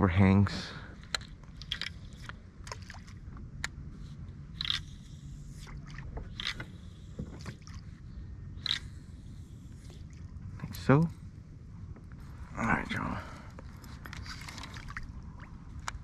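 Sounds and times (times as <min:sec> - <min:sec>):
water swishing along hull: 0:00.4 - 0:16.0.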